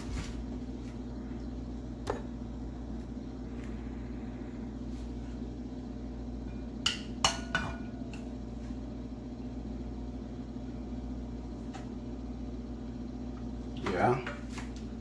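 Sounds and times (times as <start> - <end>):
steady low hum: 0.0 - 15.0
cookware clinking: 6.8 - 8.0.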